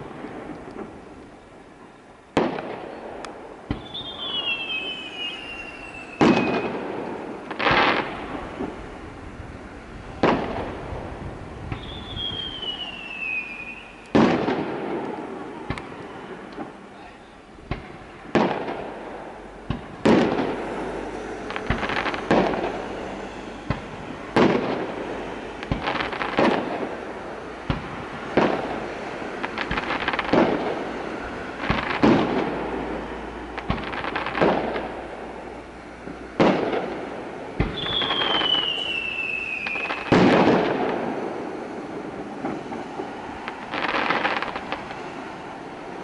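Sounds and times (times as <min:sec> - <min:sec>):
firework shells bursting: 0:02.3 - 0:09.0, 0:10.2 - 0:16.8, 0:17.6 - 0:45.8
high whistle falling in pitch: 0:03.7 - 0:06.8, 0:11.8 - 0:14.1, 0:37.7 - 0:40.2.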